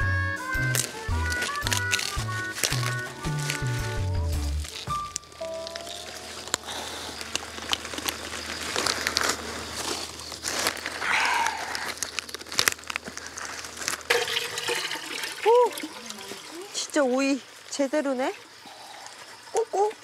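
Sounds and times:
leafy vegetables rustling: 0:00.4 - 0:20.0
cabbage leaves snapping: 0:00.5 - 0:14.1.

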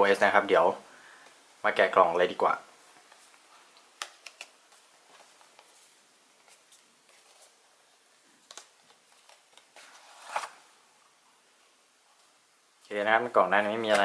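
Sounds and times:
card sliding against card: 0:09.8 - 0:10.6.

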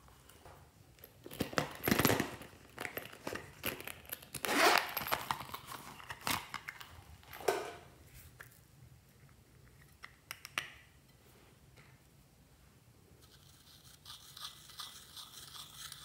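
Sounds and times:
pouch rustling: 0:01.3 - 0:06.4
zipper clicking: 0:04.3 - 0:05.2.

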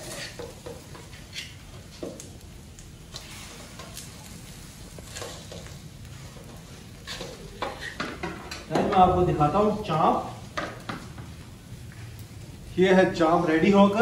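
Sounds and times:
meat sizzling on charcoal grill: 0:00.0 - 0:14.0
metal skewers and tongs clinking: 0:05.0 - 0:05.8.

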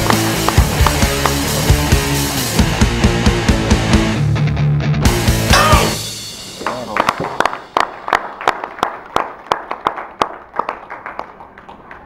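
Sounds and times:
people clapping: 0:00.0 - 0:02.4, 0:06.5 - 0:12.0.

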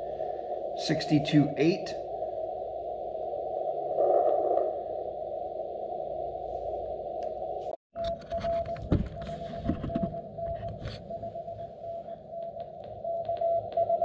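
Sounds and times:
morse code beeps: 0:08.0 - 0:14.0.

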